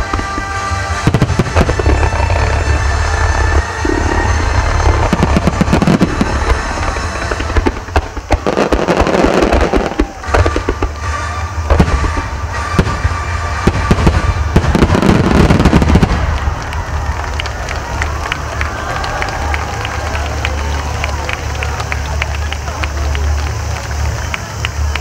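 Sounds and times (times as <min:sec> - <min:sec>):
fireworks shells bursting: 0:00.0 - 0:18.9
steady rush of noise: 0:00.0 - 0:25.0.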